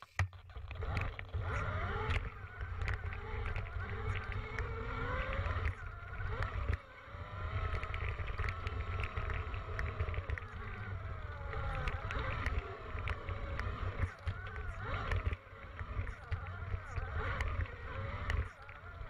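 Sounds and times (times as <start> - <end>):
rattles and clicks: 0.0 - 19.0
electric motor whining: 0.5 - 19.0
wind buffeting microphone: 0.8 - 19.0.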